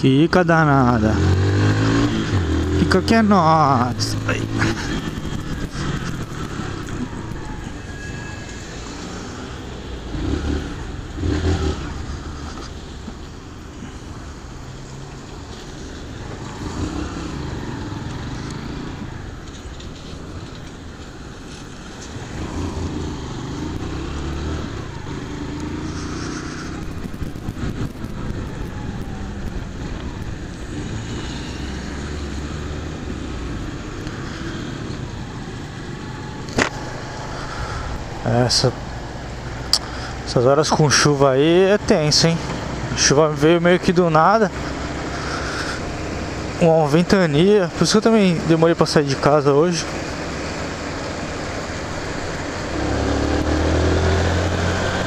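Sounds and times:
motorcycle engine revving: 0.9 - 13.1, 15.0 - 20.1, 21.5 - 47.5, 48.1 - 55.0.

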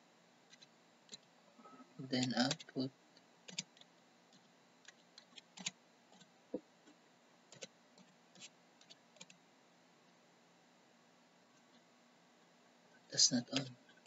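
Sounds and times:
faint keyboard typing: 0.5 - 2.9, 3.5 - 9.4.

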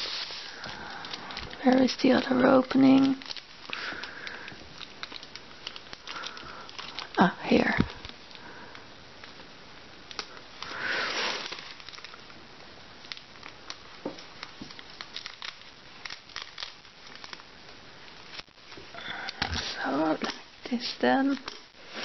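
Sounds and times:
plastic wrap crinkling: 0.0 - 20.6.

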